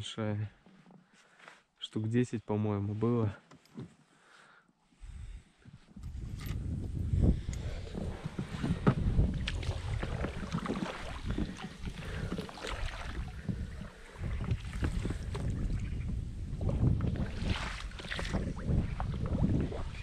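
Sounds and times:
wind buffeting microphone: 6.0s - 20.0s
oars splashing and knocking hull: 7.6s - 20.0s.

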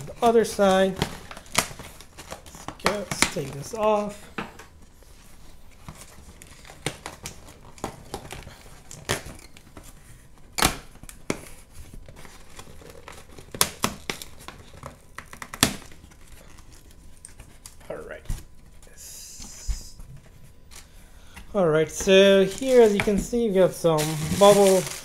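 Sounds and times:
packing tape ripping off box: 0.0s - 4.0s, 5.8s - 17.8s, 23.9s - 25.0s
cardboard flaps rustling: 21.9s - 25.0s.

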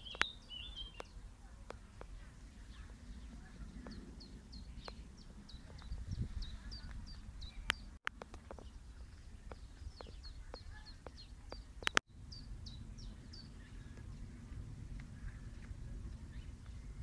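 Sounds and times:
low outdoor rumble: 0.0s - 17.0s
songbird chirping: 0.0s - 17.0s
sharp clicks: 9.5s - 12.0s.

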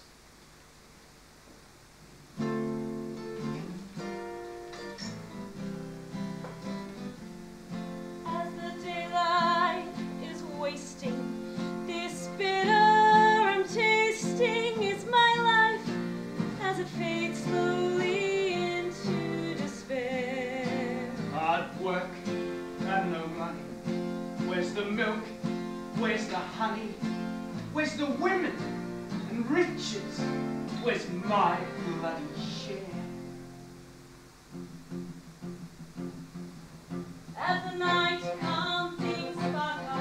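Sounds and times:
instrumental accompaniment: 2.4s - 33.9s, 34.5s - 40.0s
woman singing with vibrato: 8.3s - 16.0s, 16.6s - 21.3s, 37.4s - 40.0s.

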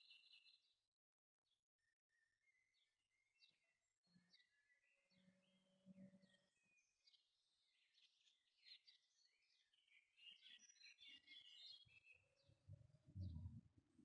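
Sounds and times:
small birds chirping: 0.0s - 0.8s, 2.1s - 14.0s
low rumble: 13.2s - 13.6s.

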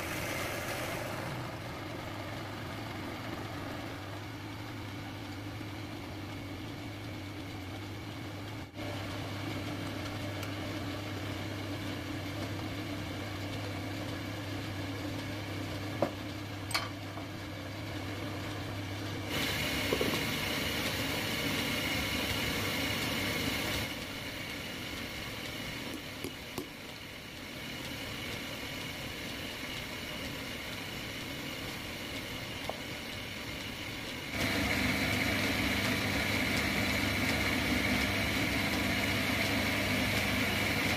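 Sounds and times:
loud even hiss: 0.0s - 2.1s
wood lathe humming: 0.0s - 15.9s, 17.7s - 40.9s.

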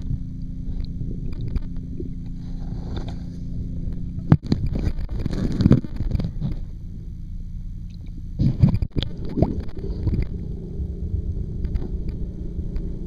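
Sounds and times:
underwater rumble and hum: 0.0s - 13.0s
water sloshing: 7.9s - 13.0s.

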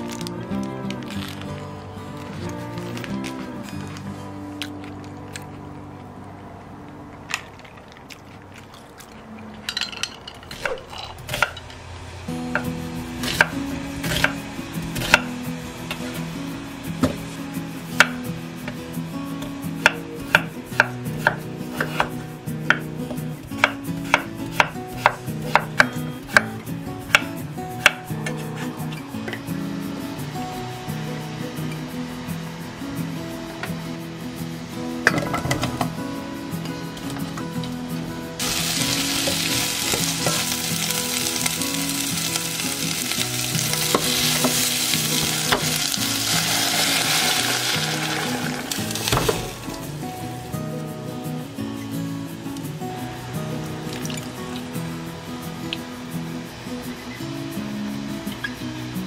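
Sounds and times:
potatoes sizzling in hot oil: 38.4s - 50.0s.

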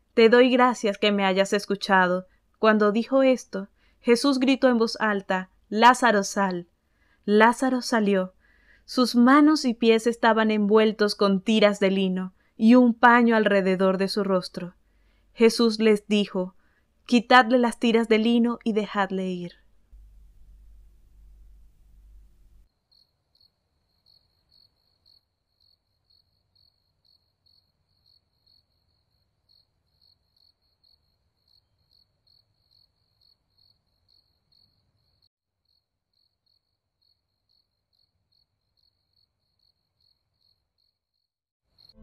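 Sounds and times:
faint cricket chirping: 20.0s - 42.0s.

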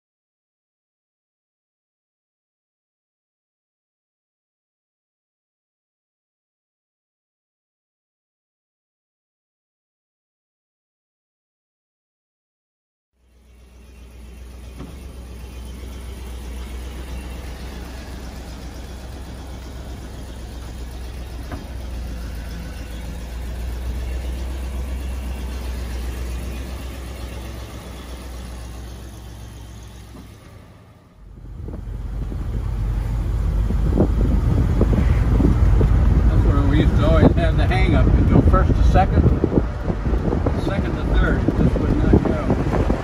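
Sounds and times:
car engine running: 13.2s - 43.0s
road noise: 13.2s - 43.0s
wind noise: 31.3s - 43.0s.

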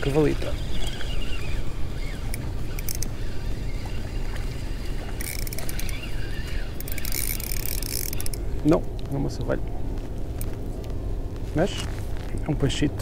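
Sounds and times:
fishing reel rattling: 0.1s - 8.4s.

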